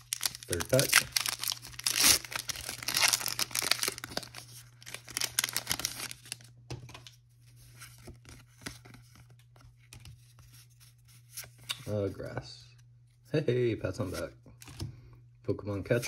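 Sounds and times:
cards rustling: 0.0 - 6.4
foil wrapper tearing and crinkling: 0.0 - 6.5.

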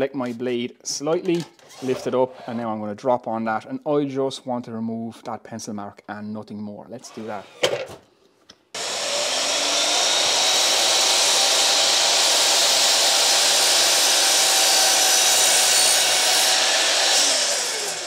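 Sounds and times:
mitre saw motor whining: 8.8 - 18.0.

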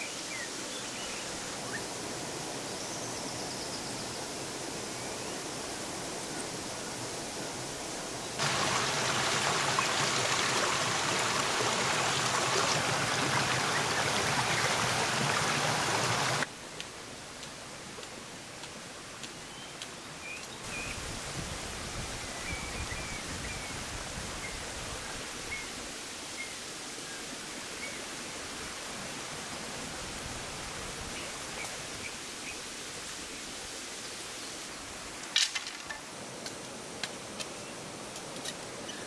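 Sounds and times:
rushing water: 4.4 - 39.0
birds chirping: 8.4 - 16.4.

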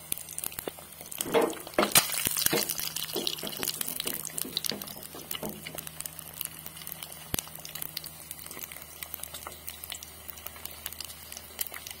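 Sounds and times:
egg sizzling in a pan: 0.0 - 12.0.

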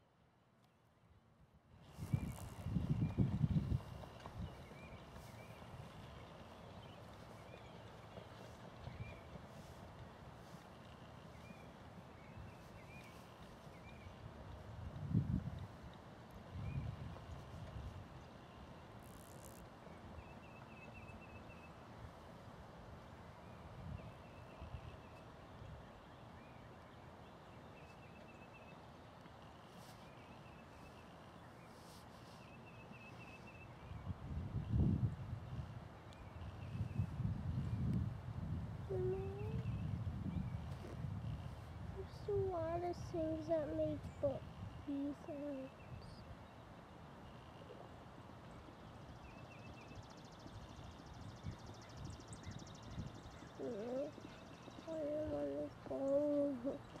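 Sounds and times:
wind noise rumble: 1.9 - 6.0, 14.3 - 15.8, 34.0 - 44.9.

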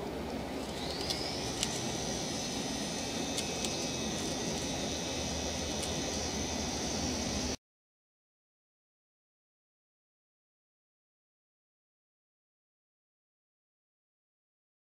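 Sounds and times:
electric motor whine: 0.0 - 7.6.

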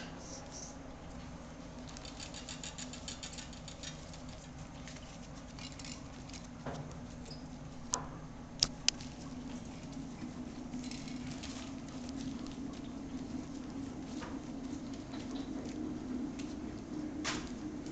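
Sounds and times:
puppies scrabbling on newspaper: 1.7 - 7.8, 8.9 - 17.9.

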